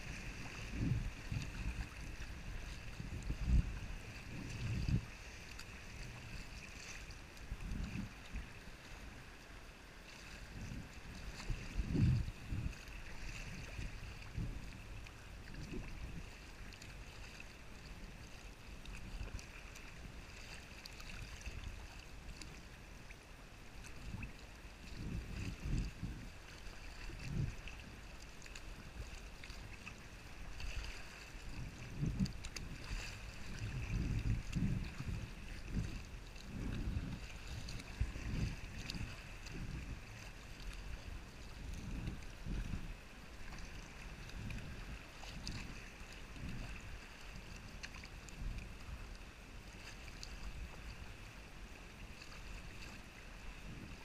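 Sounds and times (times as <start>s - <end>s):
wind buffeting microphone: 0.0s - 8.6s, 10.4s - 18.3s, 24.0s - 28.0s, 28.8s - 49.2s, 52.1s - 54.0s
paddle strokes: 0.0s - 54.0s
water splashing and lapping: 0.0s - 54.0s.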